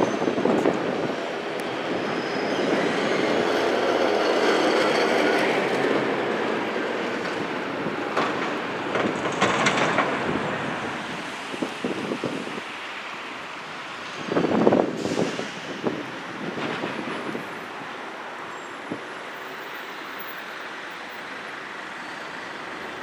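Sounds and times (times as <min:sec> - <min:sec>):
high wheel squeal: 0:00.0 - 0:07.4, 0:18.4 - 0:23.0
tram rumbling on rails: 0:00.0 - 0:23.0.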